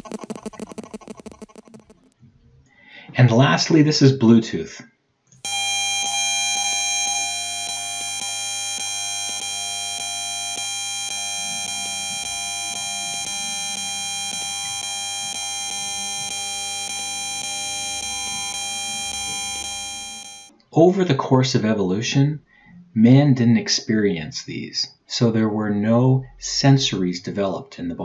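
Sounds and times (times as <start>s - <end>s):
high-pitched electronic buzz: 0.0s - 2.2s, 5.4s - 20.5s
irregular crackling: 0.0s - 2.2s.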